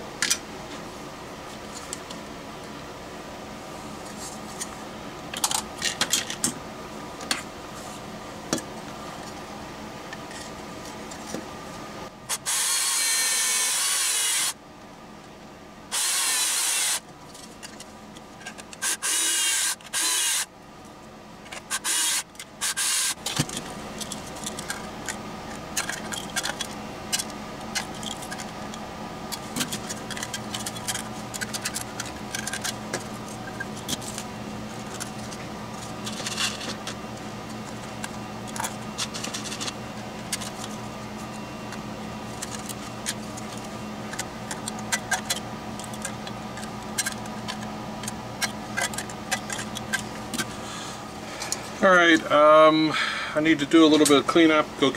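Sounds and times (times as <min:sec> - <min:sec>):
cordless drill running: 0:12.3 - 0:14.6, 0:15.9 - 0:17.0, 0:18.8 - 0:20.5, 0:21.8 - 0:23.2
metal parts clicking: 0:25.8 - 0:28.5, 0:29.3 - 0:34.2, 0:42.4 - 0:50.5.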